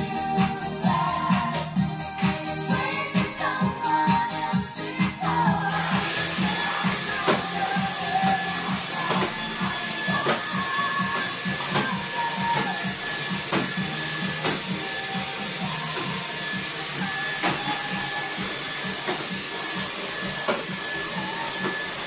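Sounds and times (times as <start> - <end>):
stick vacuum running: 5.1 - 22.0.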